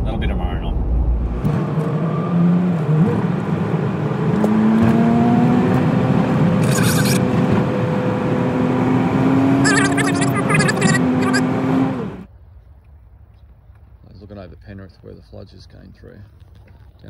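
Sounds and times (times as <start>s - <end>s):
vehicle engine heard from cab: 4.3s - 8.8s, 9.5s - 12.3s.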